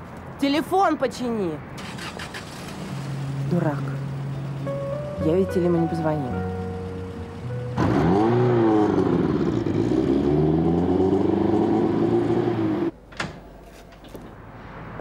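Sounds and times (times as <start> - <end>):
car engine accelerating: 6.3 - 12.9.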